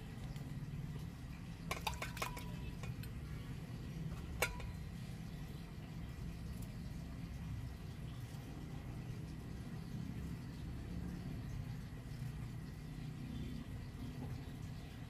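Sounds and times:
knife clinking against metal bowl: 1.7 - 3.1, 4.2 - 4.9.

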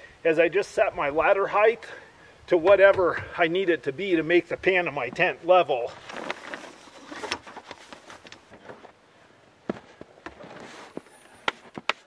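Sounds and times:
tent fabric rustling and flapping: 5.9 - 8.9, 10.3 - 12.0.

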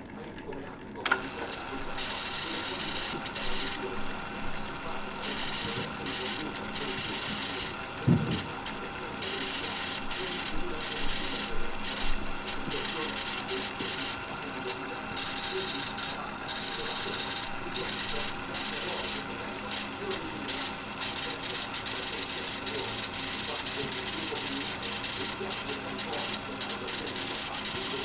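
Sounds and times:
cassette deck motor whirring: 0.0 - 28.0
tape hiss: 1.0 - 28.0.

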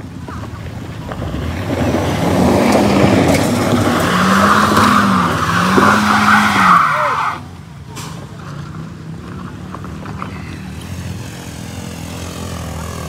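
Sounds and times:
tyres spinning on loose dirt: 0.0 - 7.5
car engine revving hard: 1.3 - 7.4.

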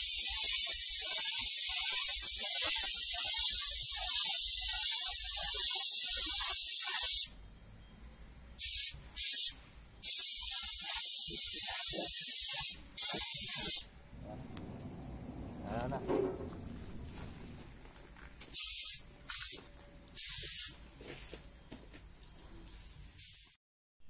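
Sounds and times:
paint spray gun hissing: 0.0 - 7.3, 8.6 - 13.9, 18.5 - 19.6, 20.2 - 20.8, 23.2 - 23.6.

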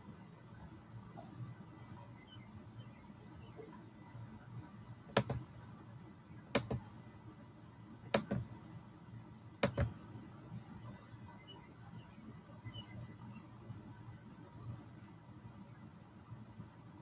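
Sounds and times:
computer mouse clicking: 5.1 - 5.5, 6.5 - 6.8, 8.1 - 8.5, 9.6 - 10.0.

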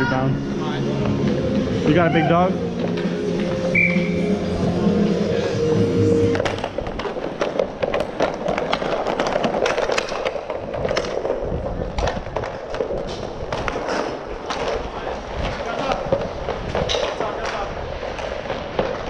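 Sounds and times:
inline skate wheels rolling: 0.0 - 19.0
hockey sticks clacking: 4.8 - 19.0.

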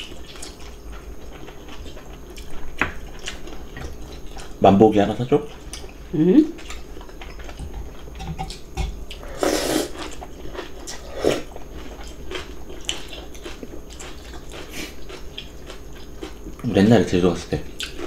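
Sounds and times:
chewing and lip smacks: 0.0 - 4.6, 6.6 - 9.2, 9.9 - 16.7, 17.8 - 18.0
noodle slurp: 9.2 - 10.1.

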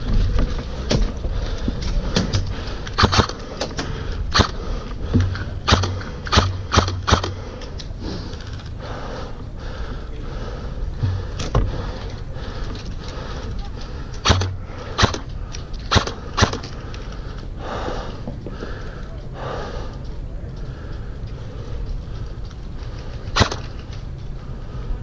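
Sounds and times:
sharp clicks and knocks: 0.0 - 8.7.

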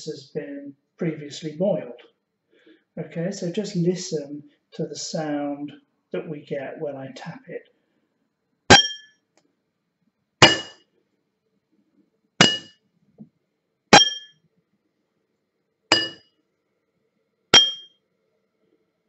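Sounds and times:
glasses of water clinking: 10.4 - 10.7, 12.4 - 12.7, 15.9 - 16.2, 17.6 - 17.9.

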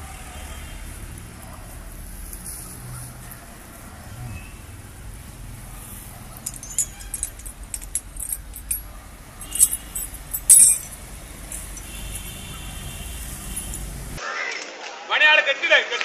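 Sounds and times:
metal chain clinking: 5.4 - 14.2.

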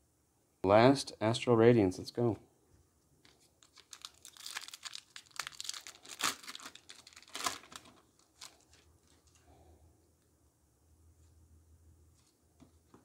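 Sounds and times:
foil wrapper tearing: 3.3 - 9.4.

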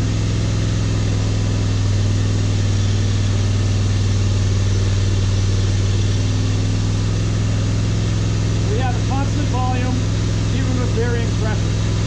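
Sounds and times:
engine running near full throttle: 0.0 - 12.0.

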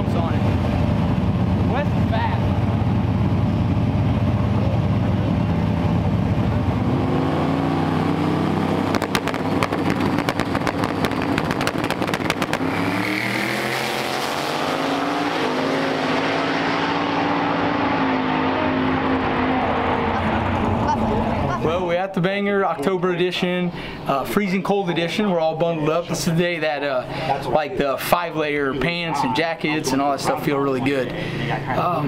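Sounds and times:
drag car engines running loud: 0.0 - 21.8
rapid popping crackle: 8.9 - 12.7.

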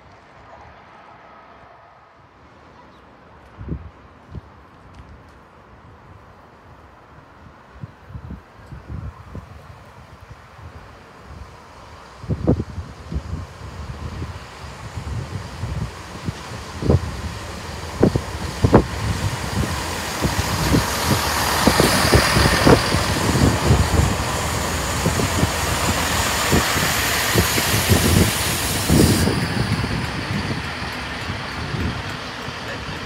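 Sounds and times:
diesel train rumbling: 10.7 - 33.0
wind buffeting microphone: 12.2 - 33.0.

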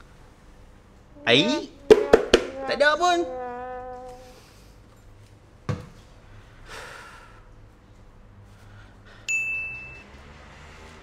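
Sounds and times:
knock: 1.9 - 2.6
bell-like ding: 9.3 - 10.0.

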